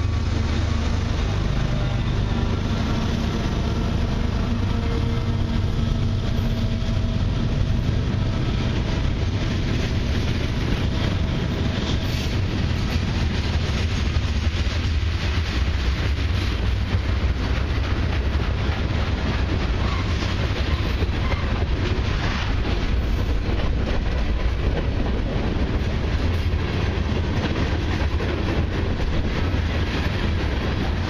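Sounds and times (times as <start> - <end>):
freight train rolling past: 0.0 - 31.0.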